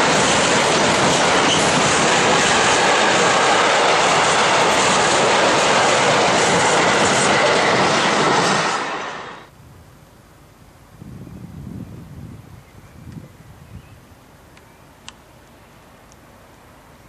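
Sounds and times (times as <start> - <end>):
freight train passing: 0.0 - 9.5.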